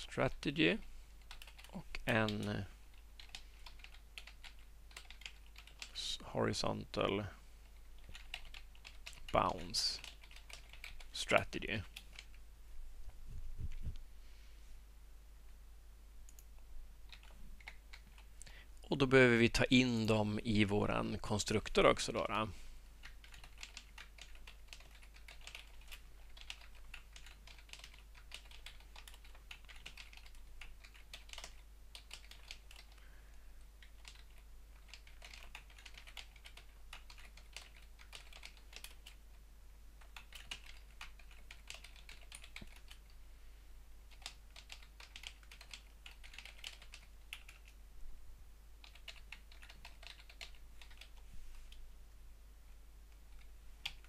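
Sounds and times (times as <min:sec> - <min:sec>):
typing on computer keyboard: 0:01.2 - 0:06.0, 0:08.0 - 0:12.4, 0:17.1 - 0:18.3, 0:23.0 - 0:33.0, 0:33.8 - 0:39.2, 0:40.0 - 0:43.1, 0:44.1 - 0:47.8, 0:48.8 - 0:51.2, 0:53.3 - 0:54.0.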